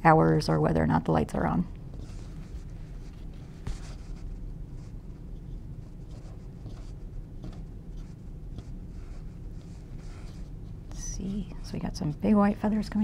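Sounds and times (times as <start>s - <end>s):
steady low hum: 0.0s - 13.0s
paintbrush strokes on canvas: 1.9s - 12.0s.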